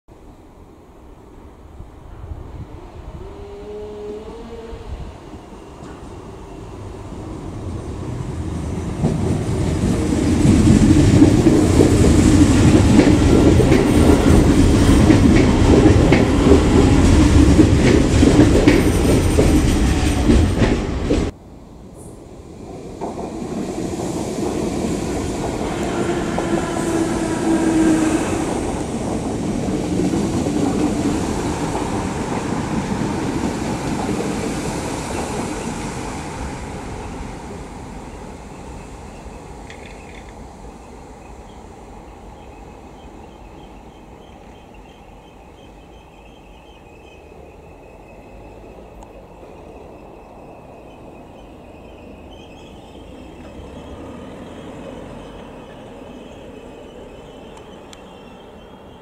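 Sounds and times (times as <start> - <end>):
faint train whine: 0.1 - 59.0
train rumbling past: 0.1 - 59.0
train wheels clicking: 8.9 - 21.4, 39.4 - 40.5.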